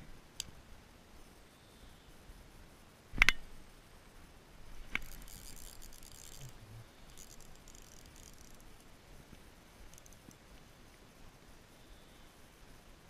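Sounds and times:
fishing reel whirring: 0:04.9 - 0:08.8, 0:09.9 - 0:10.3
fishing reel clicks: 0:04.9 - 0:08.9, 0:09.9 - 0:10.4.

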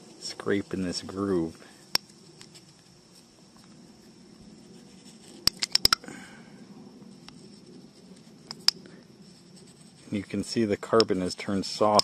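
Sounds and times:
piston ring scraping and clicking: 0:04.9 - 0:06.1, 0:07.2 - 0:08.9.

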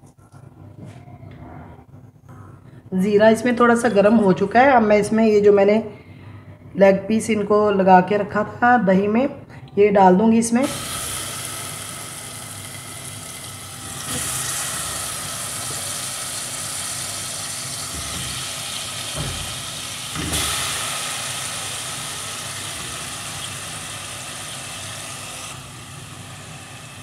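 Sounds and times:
chicken sizzling in hot oil: 0:10.6 - 0:27.0.

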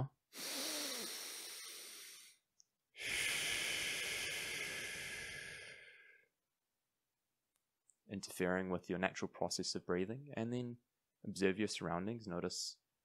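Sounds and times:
man breathing in: 0:00.3 - 0:02.4, 0:03.0 - 0:06.3
man breathing out slowly: 0:00.3 - 0:02.4, 0:03.0 - 0:06.3.

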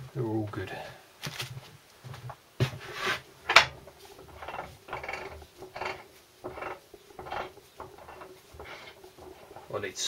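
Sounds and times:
gearbox rasping strokes: 0:02.9 - 0:10.0.

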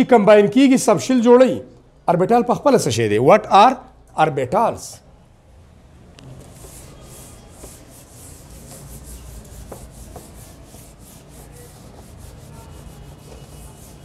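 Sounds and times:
duster swishing on whiteboard: 0:06.2 - 0:14.0.

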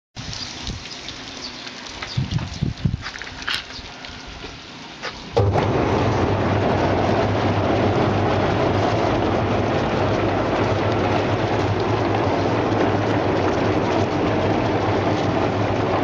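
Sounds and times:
water sprays hissing: 0:00.2 - 0:05.4
motor hum: 0:05.3 - 0:16.0
rollers churning fish: 0:05.4 - 0:16.0.

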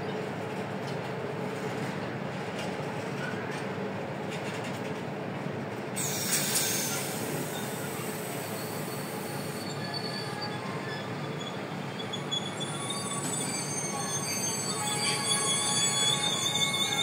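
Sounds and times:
train wagons rumbling on rails: 0:00.0 - 0:17.0
high-pitched wheel squeal: 0:06.0 - 0:17.0.

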